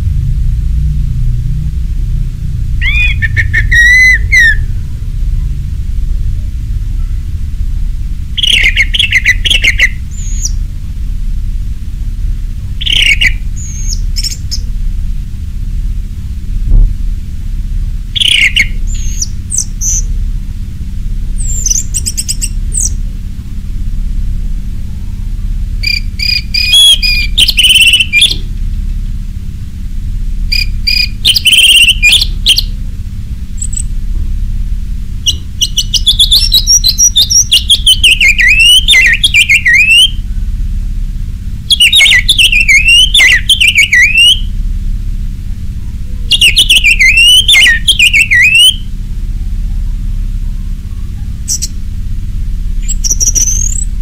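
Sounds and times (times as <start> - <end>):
steady low hum: 0.0 - 54.0
thrush singing: 2.6 - 5.5, 41.7 - 44.5.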